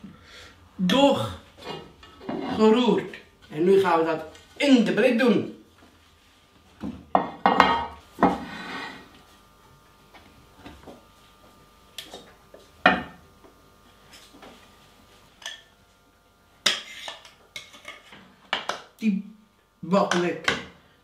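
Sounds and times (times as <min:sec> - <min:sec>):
spoon scraping mixing bowl: 0:16.7 - 0:18.2.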